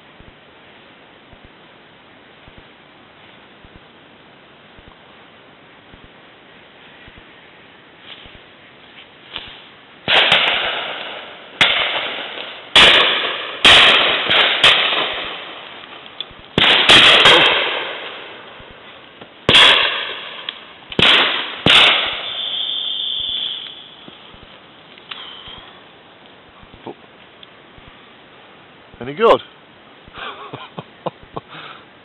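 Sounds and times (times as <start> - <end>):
shotgun shots echoing: 10.1 - 15.7, 16.6 - 18.8, 19.5 - 23.7.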